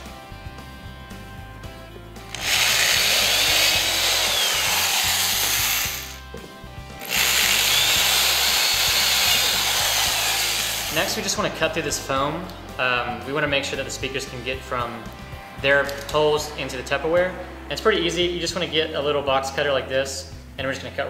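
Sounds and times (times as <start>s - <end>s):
power drill boring through plastic: 2.3s - 6.2s, 7.0s - 11.1s.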